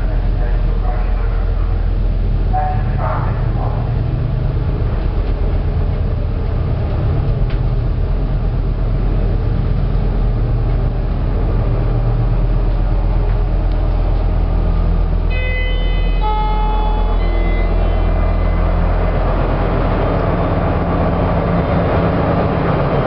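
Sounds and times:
lift car low rumble: 0.0s - 23.0s
two-tone arrival chime: 15.3s - 18.8s.

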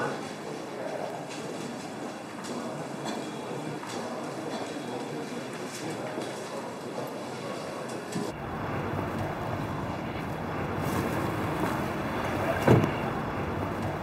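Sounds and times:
car driving up: 8.3s - 14.0s.

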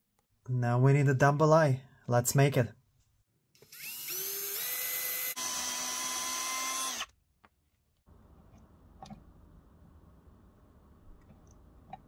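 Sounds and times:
cordless drill boring into wood: 3.6s - 7.1s.

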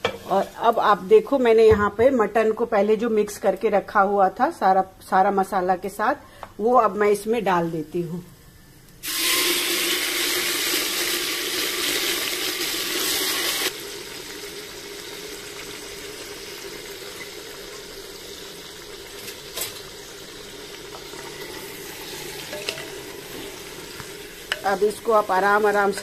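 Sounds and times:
oil sizzling in a pot: 8.6s - 26.0s.

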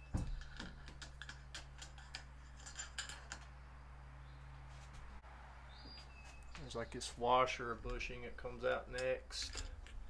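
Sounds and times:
light metallic clicks and scrapes: 0.4s - 3.5s, 8.9s - 10.0s.

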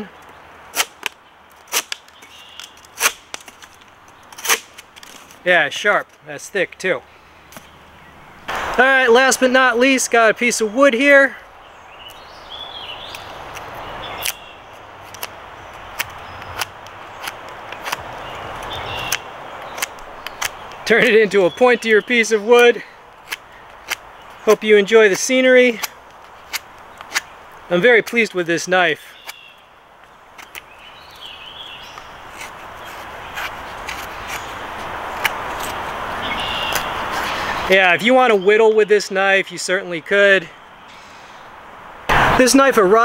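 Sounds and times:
creek water rushing: 31.7s - 39.7s.

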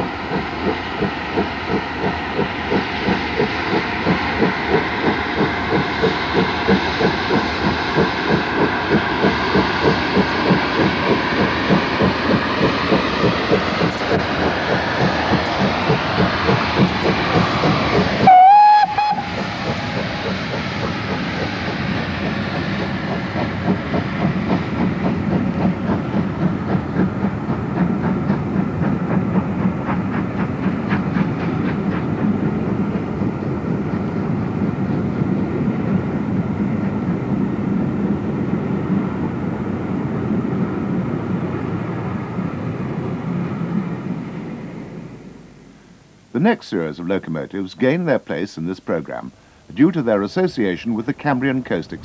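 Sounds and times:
steam locomotive passing: 0.0s - 52.0s
steam whistle blast: 18.2s - 19.4s.

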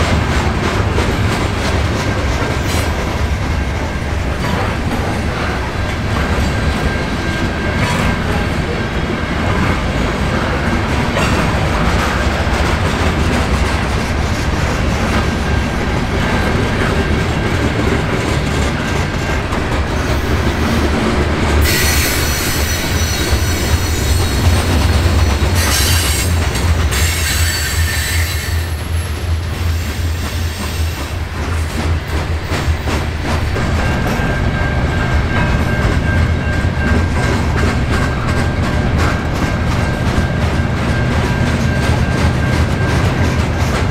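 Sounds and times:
train wheels rumbling and clattering: 0.0s - 43.9s
high wheel squeal: 21.6s - 31.1s.

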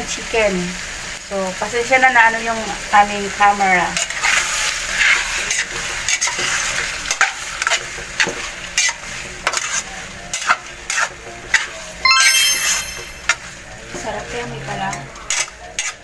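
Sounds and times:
meat sizzling in frying pan: 0.0s - 12.0s, 13.2s - 16.0s
short chime: 12.1s - 13.2s.

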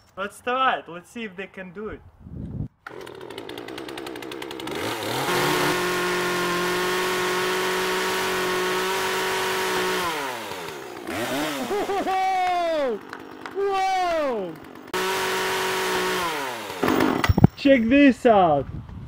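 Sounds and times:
chainsaw running: 2.8s - 17.3s.

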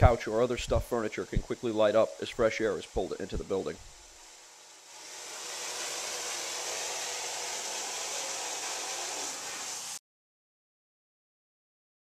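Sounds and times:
water rushing from fire hose: 0.5s - 10.0s.

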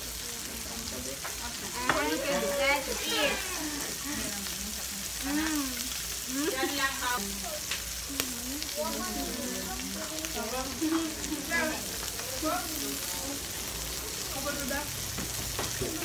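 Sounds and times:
meat sizzling on grill pan: 0.0s - 16.0s
people chattering: 0.0s - 16.0s.

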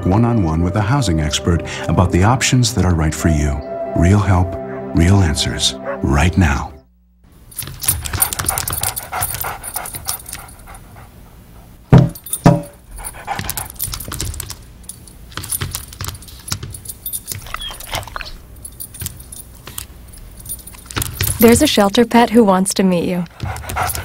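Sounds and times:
collar tags jingling: 7.4s - 11.1s, 12.0s - 22.1s, 23.3s - 24.0s
dog panting: 7.6s - 14.6s, 23.2s - 24.0s.

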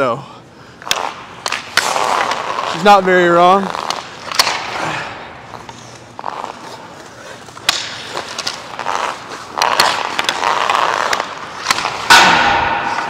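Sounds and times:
skate blades scraping ice: 0.8s - 12.3s.

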